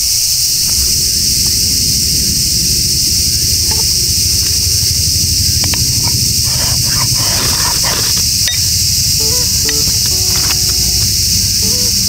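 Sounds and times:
cicadas droning: 0.0 - 12.0
ferrocerium rod scraping: 5.5 - 12.0.

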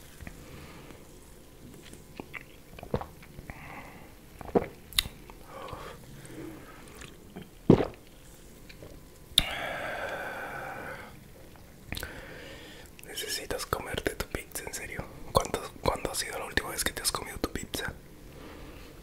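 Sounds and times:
mouth clicks and gulps: 2.2 - 3.4, 4.4 - 5.8, 11.5 - 12.1
breathy exhale: 12.0 - 12.9.

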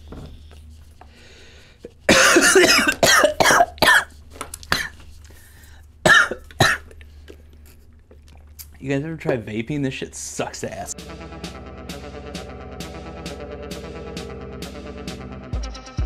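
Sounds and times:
man coughing hard: 2.1 - 4.1, 4.7 - 5.0, 6.0 - 6.9.

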